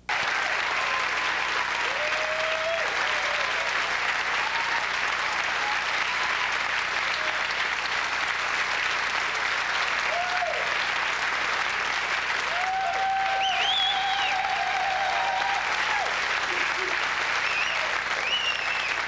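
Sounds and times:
audience applauding: 0.0 - 19.0
whistles: 13.3 - 14.5, 17.4 - 19.0.

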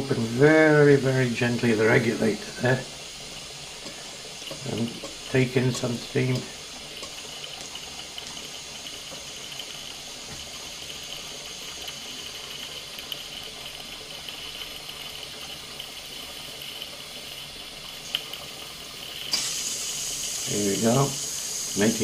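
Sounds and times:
steam blowing through regulator: 0.0 - 22.0
steam boiler hissing: 0.0 - 22.0.

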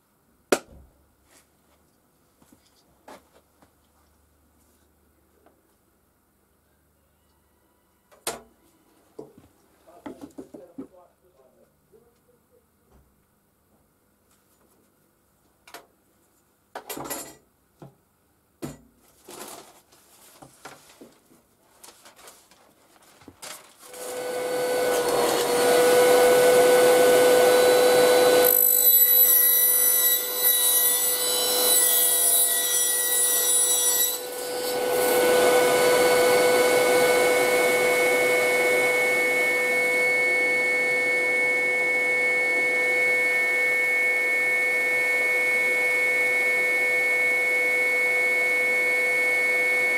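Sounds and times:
shop vacuum whining: 23.9 - 28.6, 34.2 - 49.9.

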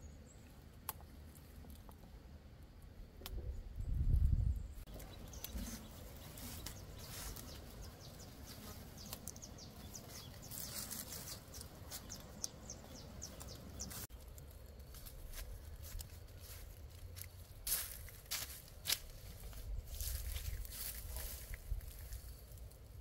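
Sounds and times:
high ticks or chirps: 4.9 - 17.8.

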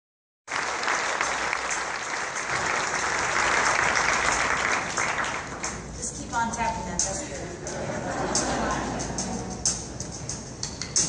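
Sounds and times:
large audience applauding: 0.5 - 5.9.

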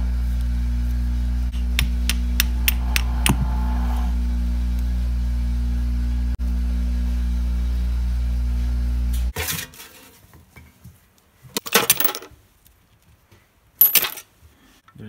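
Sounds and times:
steady low hum: 0.0 - 9.3
metal parts clattering into a pan: 11.6 - 12.3, 13.8 - 14.3.

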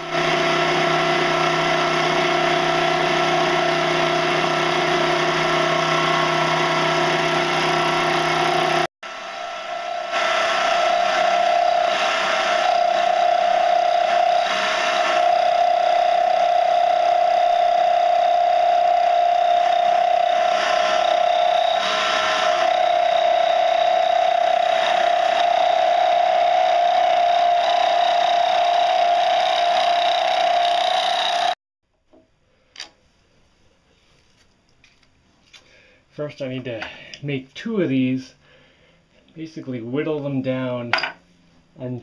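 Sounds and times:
lathe motor whine: 0.0 - 31.6.

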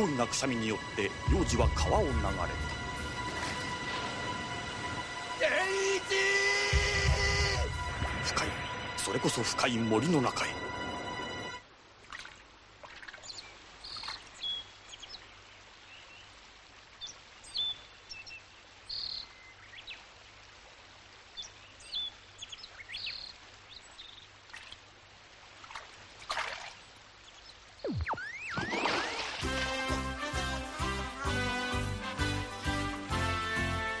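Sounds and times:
faint hiss of flowing water: 0.0 - 34.0
short bird chirps: 27.8 - 29.0.

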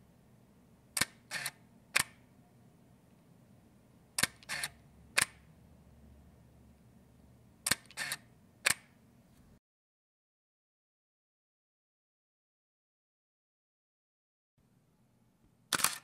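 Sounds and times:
camera mirror whir: 1.0 - 2.2, 4.2 - 5.4, 7.7 - 8.8, 15.7 - 16.0
camera shutter clicks: 1.0 - 2.2, 4.2 - 5.4, 7.7 - 8.9, 15.7 - 16.0.

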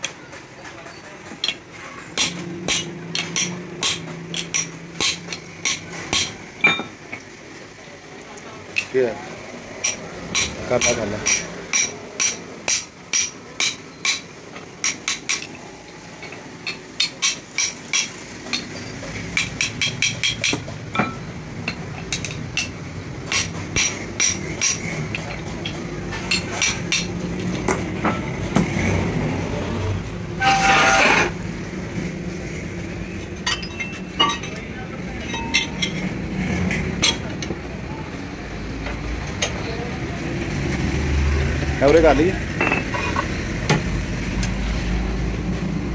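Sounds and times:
hammer tapping steel: 1.4 - 7.0, 9.8 - 15.6, 16.2 - 27.1.

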